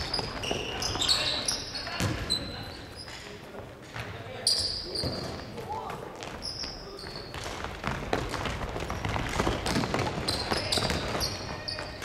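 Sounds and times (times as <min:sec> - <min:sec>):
sneaker squeaks: 0:00.0 - 0:12.0
running footsteps: 0:06.2 - 0:12.0
basketball bouncing on wooden floor: 0:07.3 - 0:12.0.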